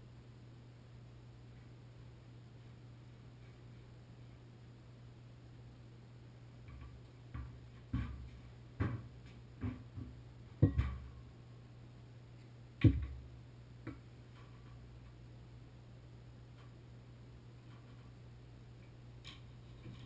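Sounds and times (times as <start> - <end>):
faint low hum: 0.0 - 20.0
knocks and thumps of tools: 6.7 - 11.2, 12.8 - 13.2.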